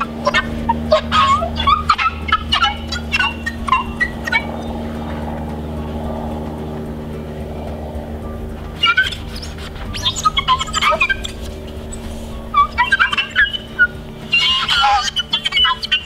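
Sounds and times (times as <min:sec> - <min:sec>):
steady low hum: 0:00.0 - 0:16.0
sponge squeaking on glass: 0:08.8 - 0:16.0.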